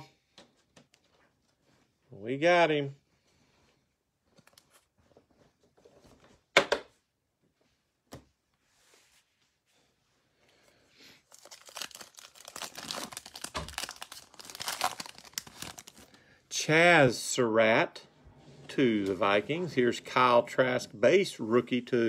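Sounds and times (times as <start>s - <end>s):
foil wrapper crinkling and tearing: 11.2s - 16.2s.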